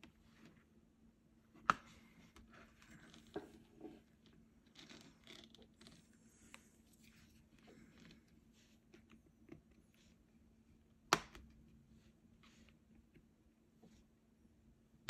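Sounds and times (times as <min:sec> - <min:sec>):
faint rustling and scraping: 0:01.8 - 0:10.4.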